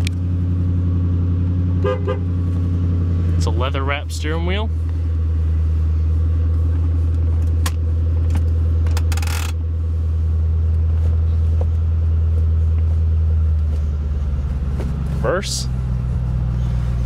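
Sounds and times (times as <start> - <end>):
car engine idling: 0.0 - 17.0
gear lever clicks and clunk: 7.4 - 9.6.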